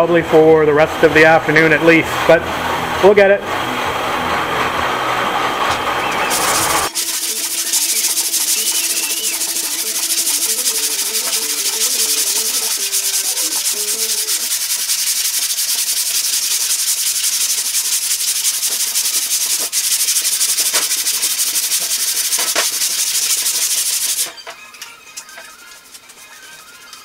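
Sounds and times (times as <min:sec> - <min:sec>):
sandpaper rasping on filler: 0:06.3 - 0:24.4, 0:25.3 - 0:27.0.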